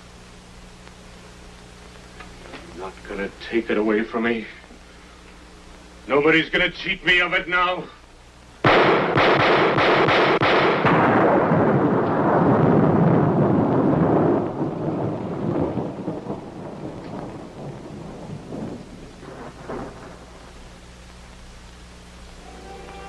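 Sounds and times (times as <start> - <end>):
dense rumbling din: 10.4 - 21.2.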